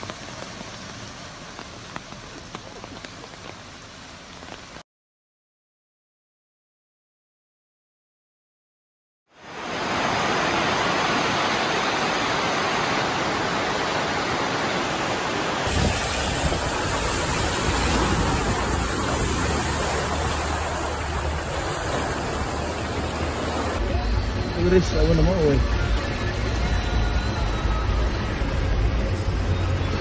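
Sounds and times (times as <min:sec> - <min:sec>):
rushing floodwater: 0:00.0 - 0:04.8, 0:09.4 - 0:23.9
water splashing around vehicles: 0:00.0 - 0:04.8, 0:09.4 - 0:23.8
low engine rumble: 0:15.8 - 0:30.0.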